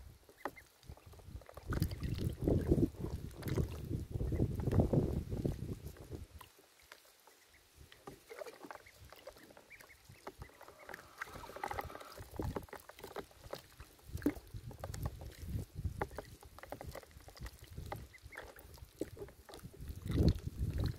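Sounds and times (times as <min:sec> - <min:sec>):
water splashes: 0:00.0 - 0:20.9
ducklings peeping: 0:00.3 - 0:04.8, 0:06.4 - 0:13.9, 0:15.2 - 0:18.8
ducklings bill clicks: 0:06.8 - 0:20.9.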